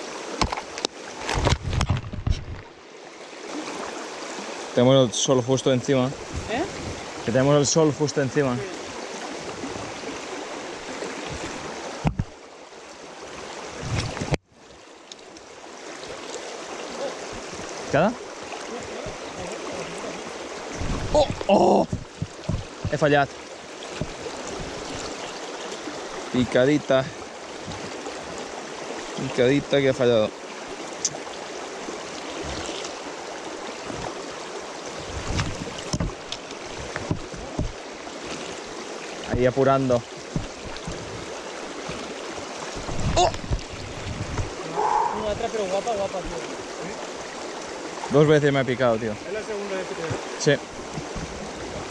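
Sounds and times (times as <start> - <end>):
river water rushing: 0.0 - 1.9, 2.5 - 51.9
low thumps: 20.7 - 23.2.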